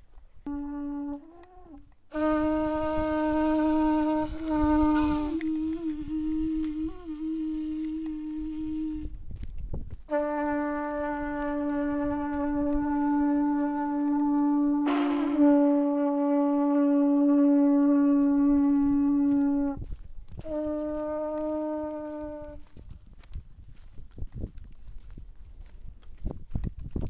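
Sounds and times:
horn trumpet blasts: 0:00.5 - 0:09.2, 0:10.1 - 0:19.8, 0:20.4 - 0:22.6.

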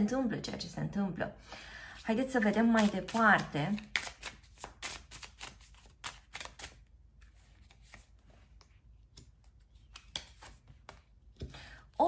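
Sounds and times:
cards clicking on a table: 0:09.1 - 0:11.6.

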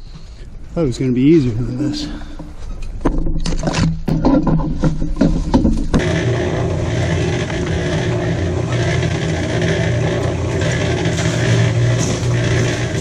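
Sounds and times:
cement mixer running: 0:05.1 - 0:13.0.

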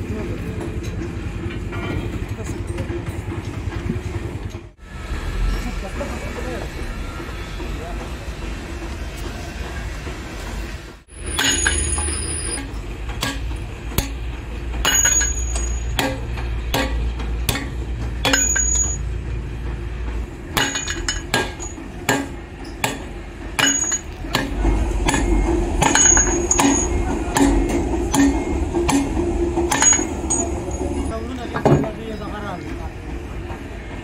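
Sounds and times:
hammer striking steel: 0:11.1 - 0:19.2, 0:20.5 - 0:30.9.

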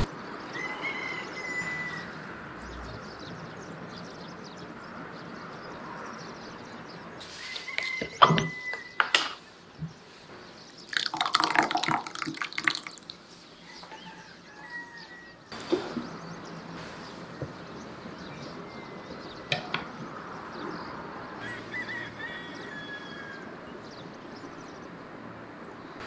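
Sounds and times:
thick sauce pouring into bowl: 0:10.7 - 0:13.2.

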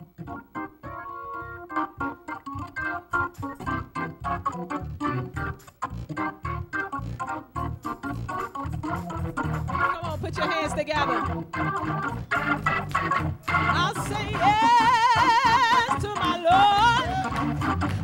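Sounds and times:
organ chords: 0:00.0 - 0:18.0.

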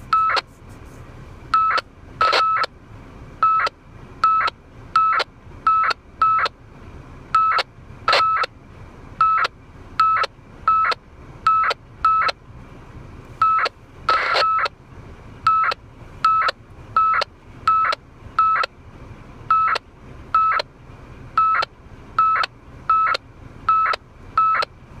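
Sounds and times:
radio data burst beeps: 0:00.1 - 0:00.5, 0:13.4 - 0:14.7.

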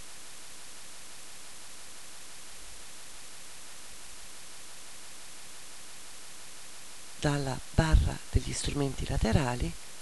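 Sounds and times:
microphone hiss: 0:00.0 - 0:10.0.

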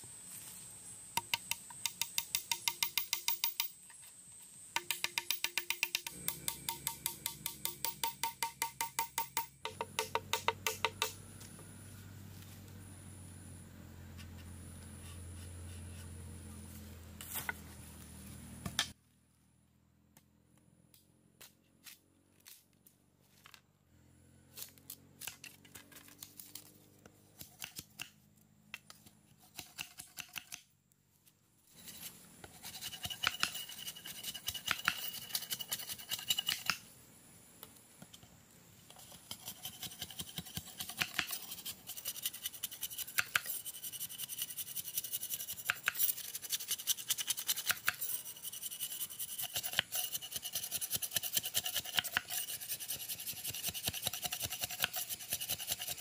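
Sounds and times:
blade scraping bamboo: 0:28.8 - 0:30.6, 0:31.7 - 0:36.9, 0:38.8 - 0:56.0.

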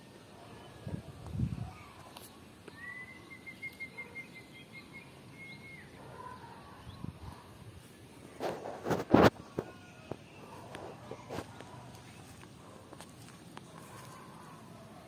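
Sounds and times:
bird calling with trill: 0:02.6 - 0:06.9.

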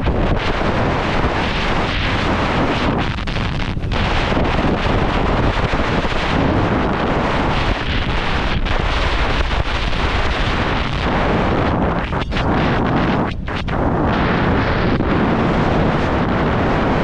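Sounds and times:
snowboard scraping over snow: 0:00.0 - 0:13.1
wind rushing over microphone: 0:00.0 - 0:17.0.

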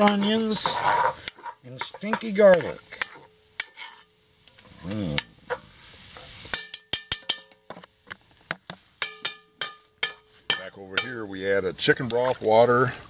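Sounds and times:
wooden spatula stirring and scraping: 0:00.0 - 0:06.6
food sizzling in a pot: 0:00.0 - 0:13.0.

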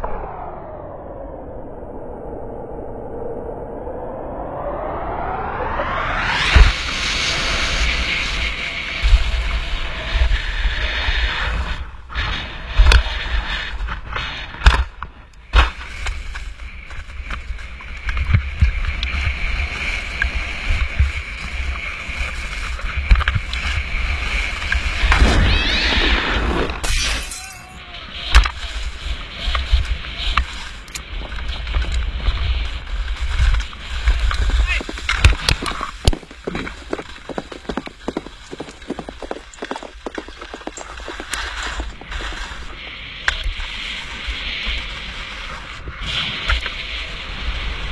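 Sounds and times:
wind rushing: 0:00.0 - 0:14.7, 0:18.2 - 0:27.0, 0:27.7 - 0:47.9
skis scraping over snow: 0:06.5 - 0:26.9, 0:28.0 - 0:47.9
skis knocking on bumps: 0:29.5 - 0:42.6.

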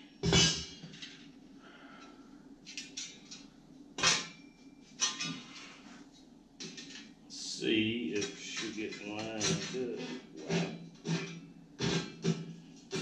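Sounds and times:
metal taps and scrapes: 0:02.6 - 0:07.1, 0:08.1 - 0:13.0
steel plates clanking on concrete: 0:08.1 - 0:13.0.

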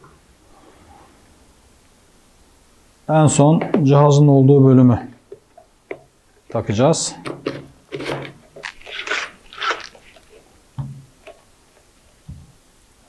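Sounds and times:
plastic scrapes and clicks: 0:08.0 - 0:10.3.

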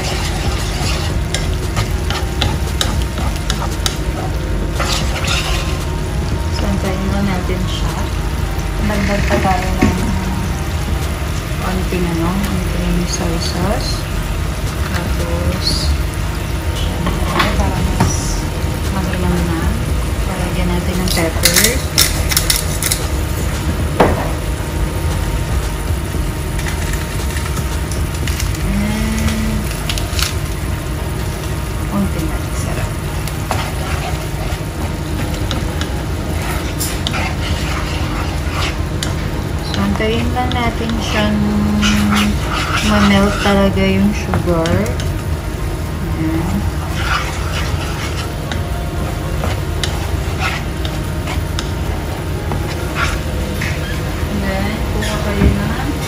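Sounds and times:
spatula scraping frying pan: 0:00.0 - 0:06.0, 0:32.5 - 0:45.1, 0:46.4 - 0:54.3
sauce simmering in frying pan: 0:00.0 - 0:56.0.

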